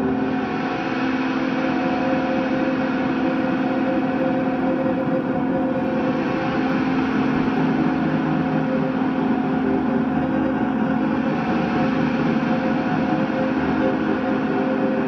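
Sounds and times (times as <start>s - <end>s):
electric guitar noise drone: 0.0s - 15.0s.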